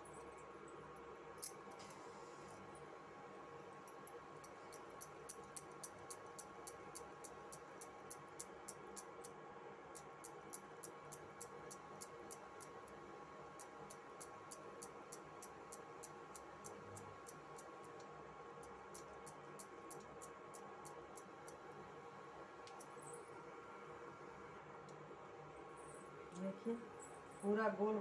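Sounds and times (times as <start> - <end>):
low steady hum: 0.0 - 28.0
fast regular ticking: 3.9 - 13.0.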